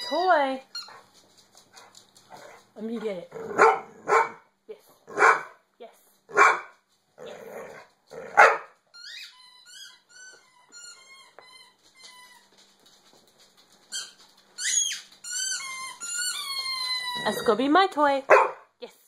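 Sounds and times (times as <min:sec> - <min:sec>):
dog squeaking: 0:00.0 - 0:01.0, 0:08.9 - 0:12.6, 0:13.9 - 0:17.7
dog barking: 0:03.5 - 0:04.4, 0:05.1 - 0:05.6, 0:06.3 - 0:06.7, 0:08.3 - 0:08.8, 0:18.3 - 0:18.7
dog whining: 0:09.0 - 0:12.6, 0:13.9 - 0:17.7.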